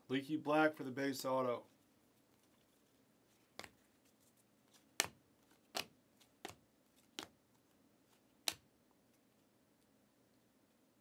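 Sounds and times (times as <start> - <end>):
cards snapping off a stack: 5.0 - 6.6.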